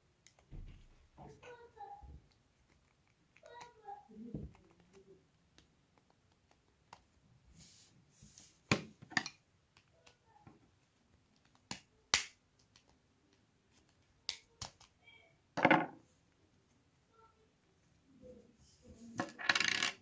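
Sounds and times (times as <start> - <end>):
plastic clicks and taps: 11.4 - 15.0.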